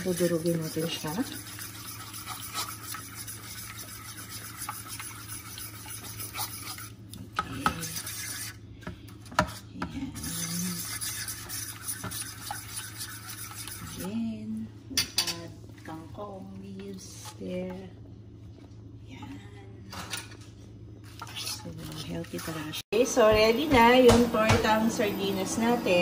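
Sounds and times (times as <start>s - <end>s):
fork mashing wet food: 0.0s - 14.1s.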